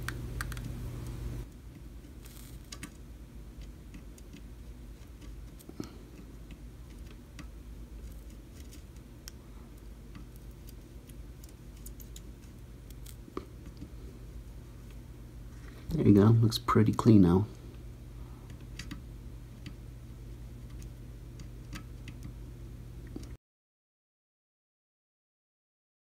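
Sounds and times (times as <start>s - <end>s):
small clicks and scratches: 0.0s - 3.0s, 3.6s - 13.9s, 20.6s - 22.4s
steady low hum: 0.0s - 23.4s.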